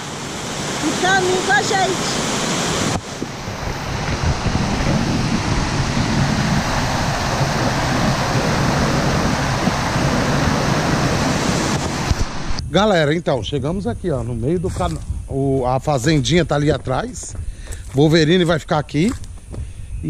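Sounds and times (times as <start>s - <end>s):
waterfall rushing over rocks: 0.0s - 12.6s
wind buffeting microphone: 0.8s - 20.0s.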